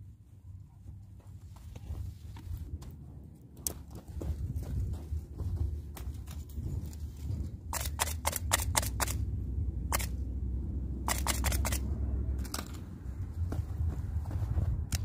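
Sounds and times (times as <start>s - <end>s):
low steady rumble: 0.0s - 15.0s
sharp clicks: 7.7s - 9.2s, 9.9s - 10.2s, 11.0s - 12.8s.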